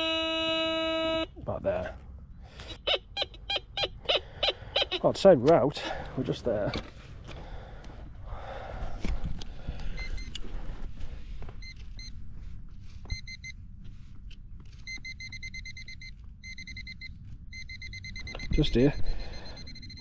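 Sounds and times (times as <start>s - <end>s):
metal detector beeping: 0.0s - 1.8s, 2.6s - 5.2s, 13.0s - 13.6s, 14.8s - 20.0s.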